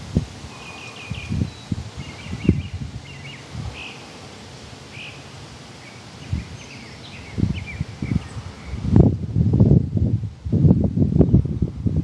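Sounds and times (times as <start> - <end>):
faint hiss: 0.0 - 12.0
small birds chirping: 0.5 - 9.0.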